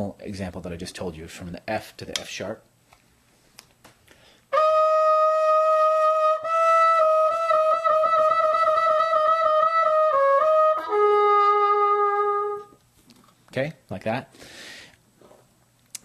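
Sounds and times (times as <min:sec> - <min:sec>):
trumpet playing a trill: 0:04.5 - 0:12.7.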